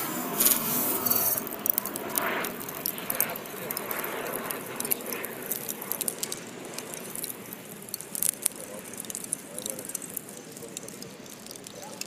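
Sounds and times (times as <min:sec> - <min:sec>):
fire crackles and pops: 0:00.0 - 0:12.0
rush of flame: 0:00.0 - 0:12.0.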